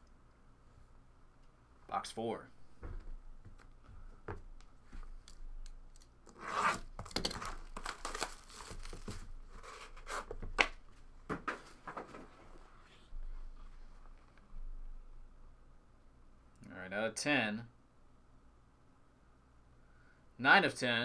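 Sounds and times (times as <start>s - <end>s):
plastic wrap tearing and crinkling: 6.6s - 10.3s.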